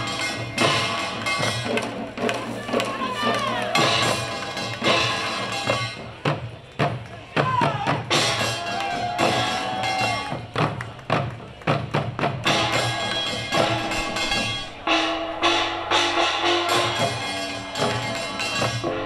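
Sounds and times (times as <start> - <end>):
drum ensemble: 0.0 - 19.0.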